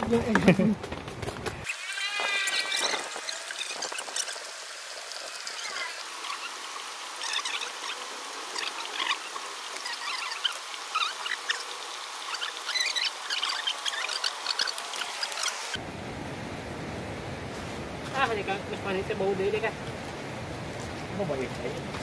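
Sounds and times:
rain hissing: 0:01.6 - 0:15.9.

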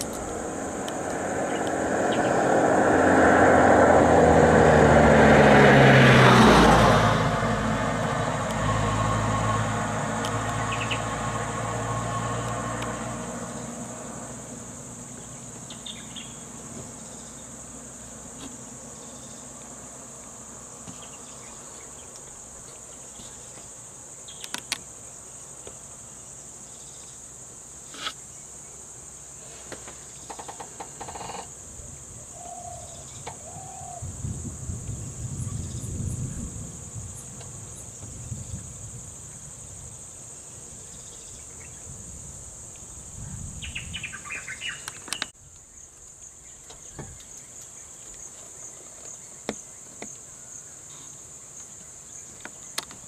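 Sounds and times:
low rumble: 0:00.0 - 0:14.9
insects droning: 0:00.0 - 0:53.0.

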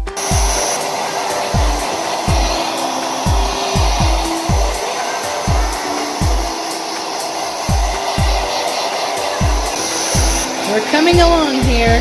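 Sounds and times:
hair dryer blowing: 0:00.0 - 0:12.0
background music with bass drum: 0:05.4 - 0:06.6, 0:09.4 - 0:12.0.

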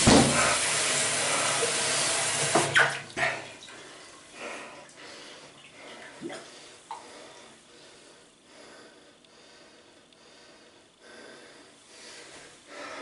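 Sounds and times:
water running: 0:00.0 - 0:07.5.

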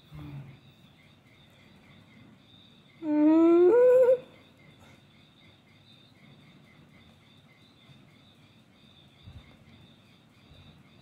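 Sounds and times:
faint insect chirring: 0:00.0 - 0:11.0
person humming: 0:03.0 - 0:04.2.

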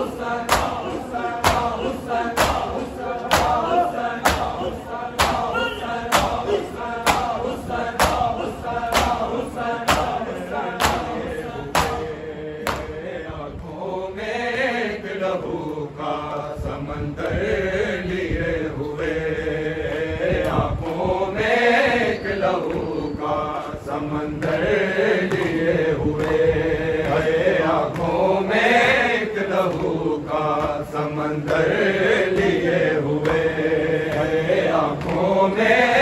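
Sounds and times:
men chanting together: 0:00.0 - 0:36.0
hands slapping chests: 0:00.5 - 0:04.6, 0:05.2 - 0:05.5, 0:06.1 - 0:07.4, 0:08.0 - 0:10.2, 0:10.8 - 0:12.0.

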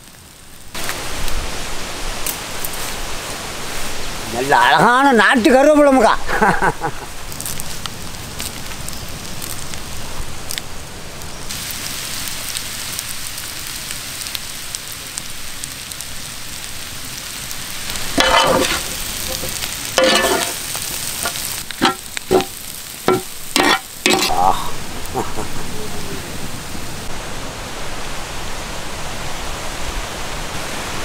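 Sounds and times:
squid sizzling in oil: 0:06.3 - 0:25.5
ladle stirring and knocking pan: 0:18.0 - 0:24.3.

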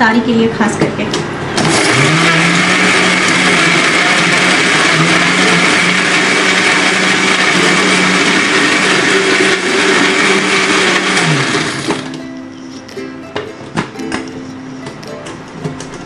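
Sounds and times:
blender grinding ice: 0:01.6 - 0:12.2.

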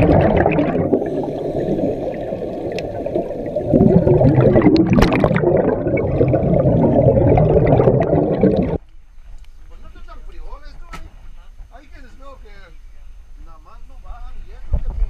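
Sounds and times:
underwater bubbling: 0:00.0 - 0:08.8.

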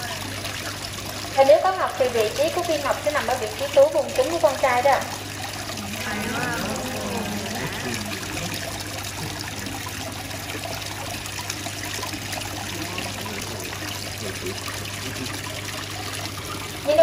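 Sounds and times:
water trickling: 0:00.0 - 0:17.0
low even hum: 0:05.4 - 0:17.0.

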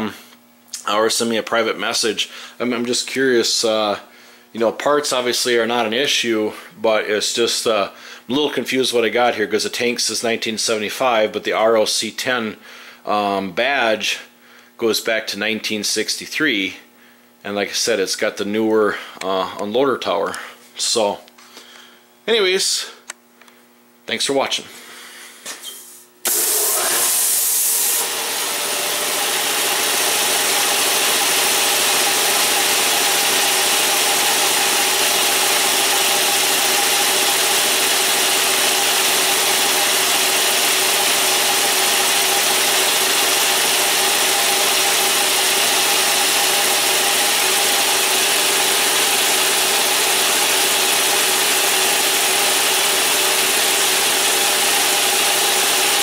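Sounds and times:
air compressor running: 0:00.0 - 0:10.0, 0:24.6 - 0:56.0
air hiss: 0:25.7 - 0:28.0.

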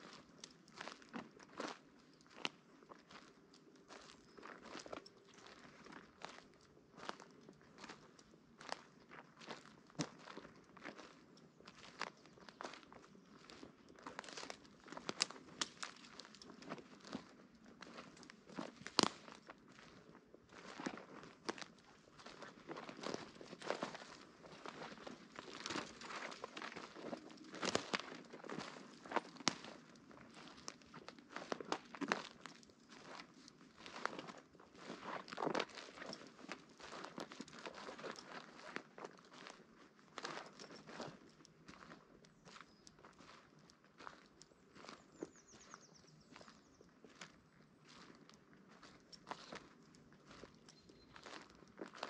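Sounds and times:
footsteps in dry leaves: 0:03.9 - 0:39.6, 0:40.2 - 0:52.0
twig cracking: 0:14.2 - 0:17.2, 0:18.7 - 0:19.4.

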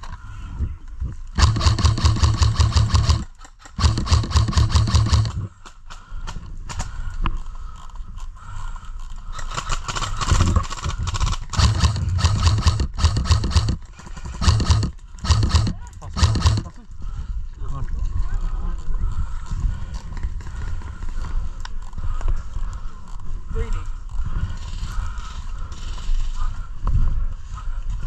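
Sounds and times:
airsoft guns firing bursts: 0:01.4 - 0:05.5, 0:09.4 - 0:16.7.

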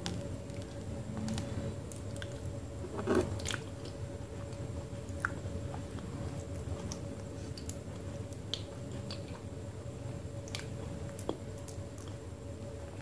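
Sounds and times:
wet squishy eating sounds: 0:00.0 - 0:09.5.

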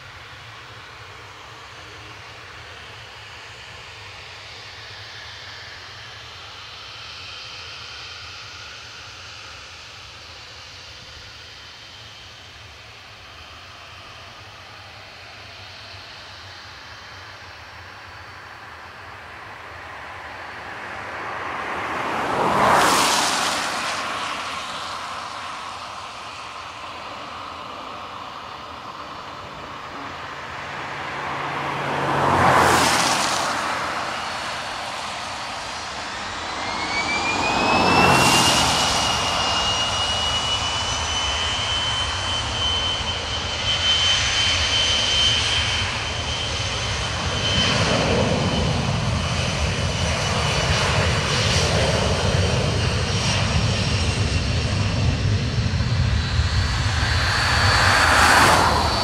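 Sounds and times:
jet engine whine: 0:00.0 - 0:59.0
loud rushes of noise: 0:19.4 - 0:42.6, 0:47.0 - 0:59.0.

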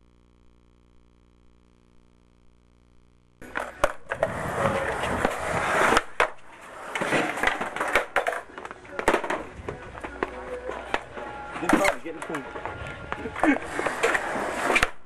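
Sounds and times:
faint steady hum: 0:00.0 - 0:15.0
skateboard clacks: 0:03.4 - 0:15.0
skateboard wheels rolling: 0:03.4 - 0:15.0.

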